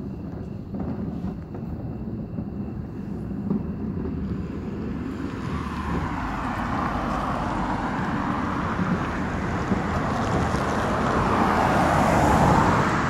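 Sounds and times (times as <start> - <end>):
wind buffeting microphone: 0.0 - 13.0
car tyres hissing on road: 4.4 - 13.0.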